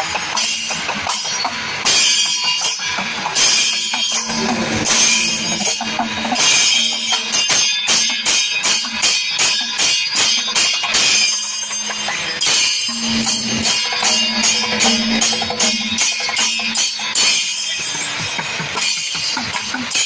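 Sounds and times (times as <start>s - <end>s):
drums: 0.0s - 20.0s
hand cymbals clashing: 0.0s - 20.0s
held low tone: 4.2s - 7.6s, 11.8s - 16.8s.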